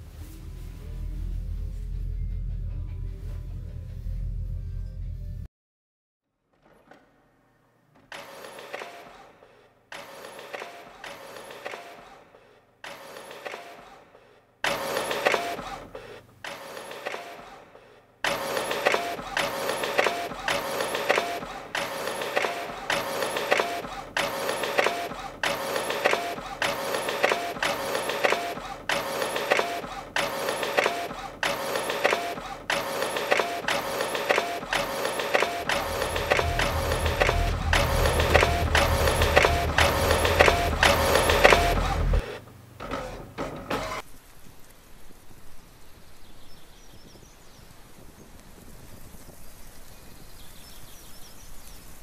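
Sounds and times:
office printer printing: 8.1 - 9.3, 9.9 - 12.2, 12.8 - 14.0, 14.6 - 44.0.

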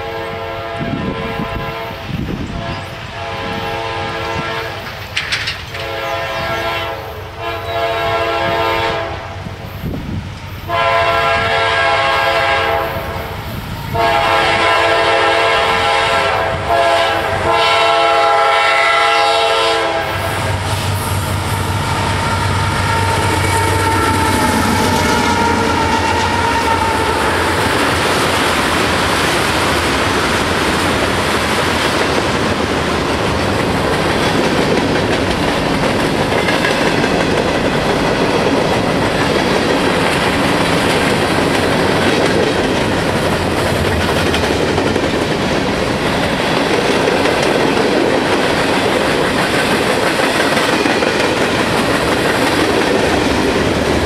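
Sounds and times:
train horn: 0.0 - 4.9, 5.8 - 9.4, 10.7 - 13.3, 13.9 - 28.2
diesel locomotives passing: 0.0 - 54.0
freight cars wheel and rail noise: 0.0 - 54.0.

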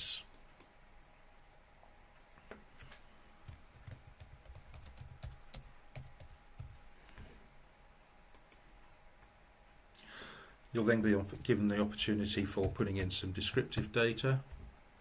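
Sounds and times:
faint keyboard typing: 3.4 - 6.8, 8.3 - 8.6, 11.2 - 14.0.

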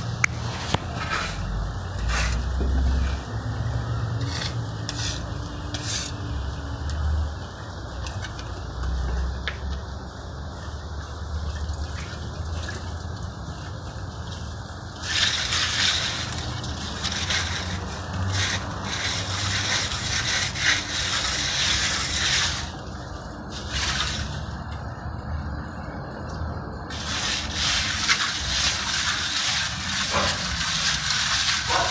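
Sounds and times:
trowel scraping cement on wall: 0.2 - 3.3, 4.2 - 6.2, 15.0 - 22.8, 26.9 - 31.9.

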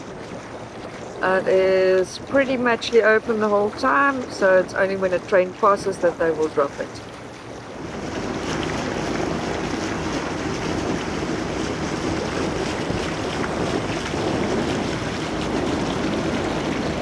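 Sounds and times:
water rushing past hull: 0.0 - 17.0
wind noise on microphone: 7.6 - 17.0.

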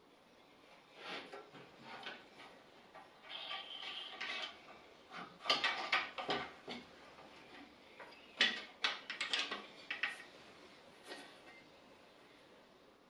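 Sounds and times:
wood scraping along metal rail: 0.9 - 6.8.

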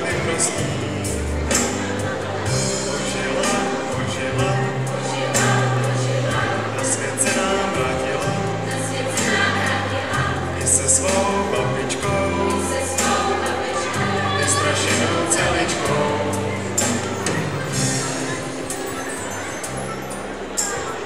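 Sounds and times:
bass line: 0.0 - 18.7
group of voices singing: 0.0 - 19.1.

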